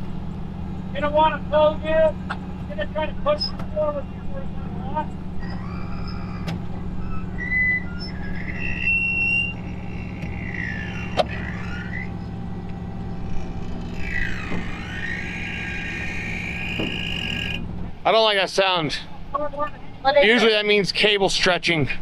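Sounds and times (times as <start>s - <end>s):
truck engine drone: 0.0s - 22.0s
winch cable squealing and creaking: 0.8s - 21.8s.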